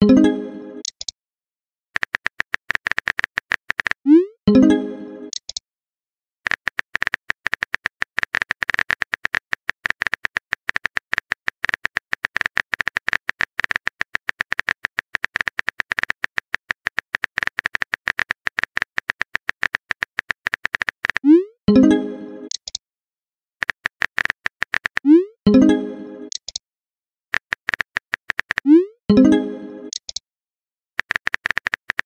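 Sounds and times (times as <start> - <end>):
phone keyboard typing clicks: 0.8 - 1.1, 2.0 - 4.0, 5.3 - 5.6, 6.5 - 21.3, 22.5 - 22.8, 23.6 - 25.1, 26.3 - 26.6, 27.4 - 28.7, 29.9 - 30.2, 31.0 - 32.0
message sent sound: 4.1 - 5.4, 25.1 - 26.3, 28.7 - 30.0.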